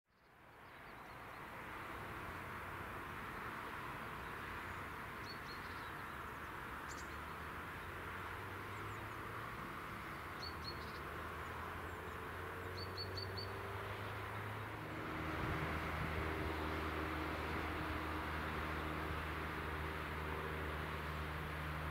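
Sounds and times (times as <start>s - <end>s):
distant traffic hum: 0.2s - 21.9s
low engine-like hum: 0.6s - 21.9s
small bird chirping: 6.9s - 7.2s, 10.1s - 14.1s.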